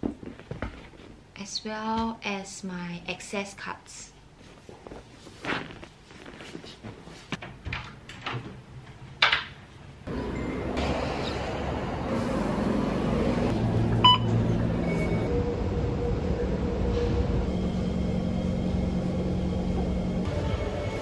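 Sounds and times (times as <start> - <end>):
bus engine rumble: 10.1 - 20.3
card reader beep: 14.0 - 15.3.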